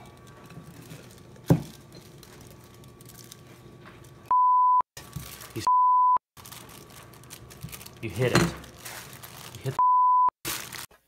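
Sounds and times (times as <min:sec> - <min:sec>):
censor bleep tone: 0:04.3 - 0:04.8, 0:05.7 - 0:06.2, 0:09.8 - 0:10.3.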